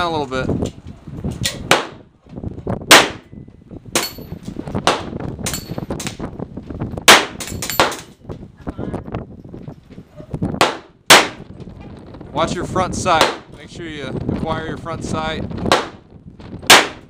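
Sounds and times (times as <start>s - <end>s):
steel plate targets ringing: 4.0s - 4.3s.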